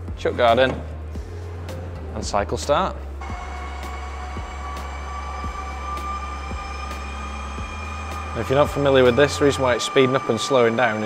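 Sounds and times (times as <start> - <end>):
lathe spindle whine rising: 3.1 - 11.0.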